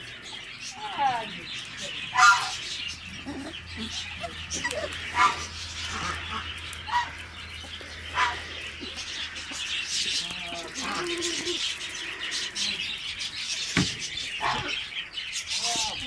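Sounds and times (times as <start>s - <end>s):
puppies yipping: 1.7s - 12.4s, 13.2s - 15.0s.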